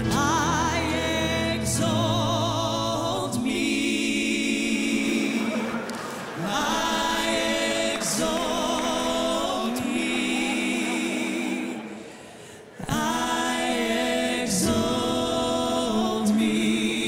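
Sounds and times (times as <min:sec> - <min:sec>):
backing voices singing harmony: 0:00.0 - 0:17.0
woman singing with vibrato: 0:00.0 - 0:17.0.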